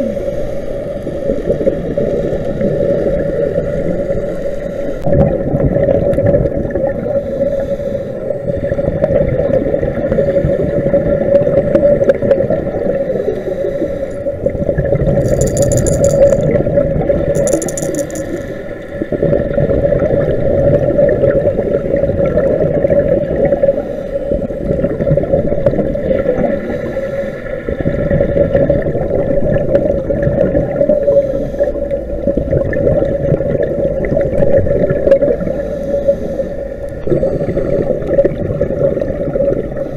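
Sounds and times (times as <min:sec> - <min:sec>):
underwater camera drone: 0:29.0 - 0:39.9.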